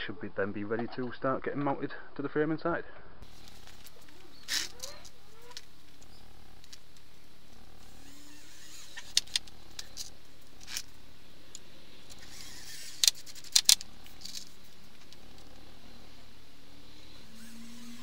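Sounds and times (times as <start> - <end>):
cordless drill driving screws: 7.9 - 9.4, 12.1 - 13.2, 17.2 - 18.0.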